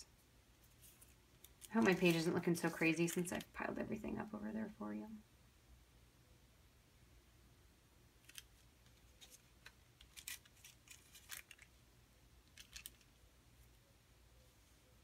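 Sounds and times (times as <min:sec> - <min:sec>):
low steady hum: 0:00.0 - 0:15.0
paper strips rustling and tapping: 0:00.6 - 0:03.6, 0:08.2 - 0:11.7, 0:12.4 - 0:13.1.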